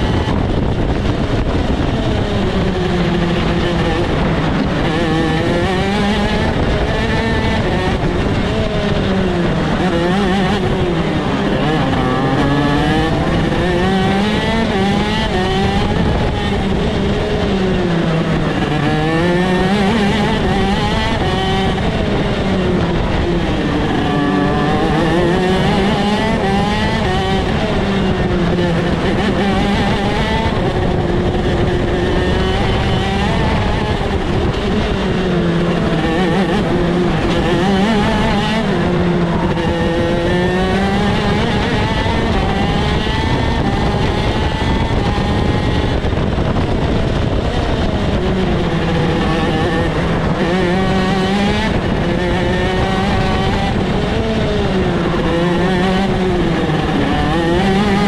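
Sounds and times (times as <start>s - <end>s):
kart engine at racing speed: 0.0s - 58.0s.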